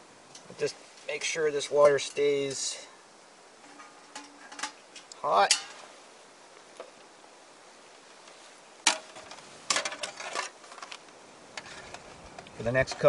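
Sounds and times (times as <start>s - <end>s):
metal pot lid clinking: 5.5s - 5.8s
pot clattering: 5.5s - 5.8s.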